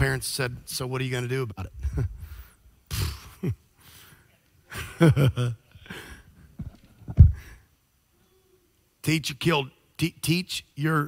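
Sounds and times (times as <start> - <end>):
man laughing: 1.7 - 3.6, 4.7 - 6.1.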